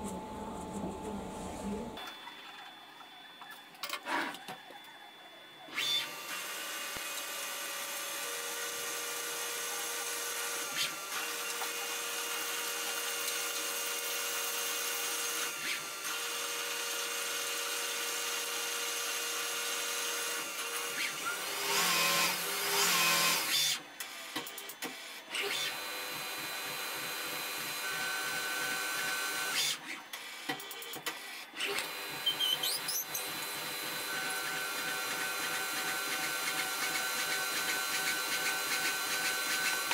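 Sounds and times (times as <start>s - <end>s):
lathe machining with high whine: 25.1s - 29.8s, 31.5s - 39.9s.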